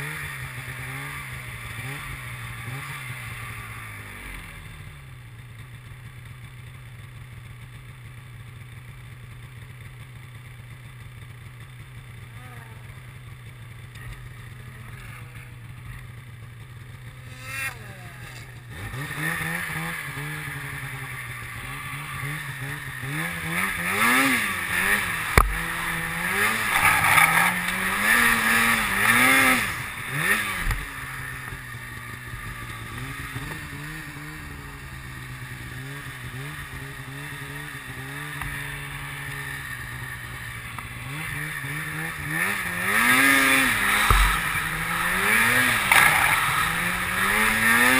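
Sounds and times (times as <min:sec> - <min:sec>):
snowmobile engine revving: 0:00.0 - 0:05.0, 0:10.9 - 0:47.9
sharp knock: 0:44.0 - 0:44.6.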